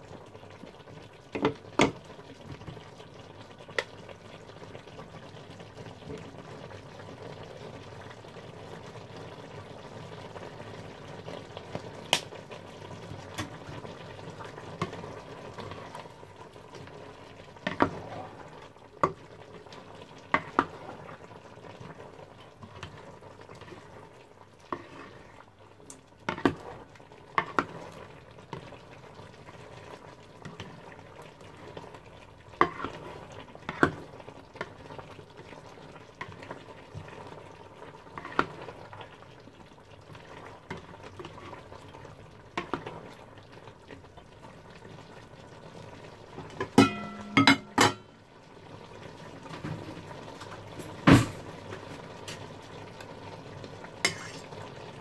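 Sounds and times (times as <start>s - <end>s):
vegetables sizzling: 0.0s - 55.0s
spatula knocking against pan: 46.7s - 48.1s.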